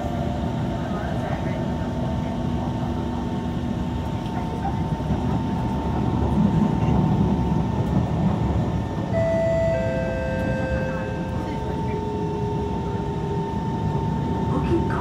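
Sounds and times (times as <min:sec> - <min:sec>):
train wheel-on-rail rumble: 0:00.0 - 0:15.0
electric traction tones: 0:09.1 - 0:14.4.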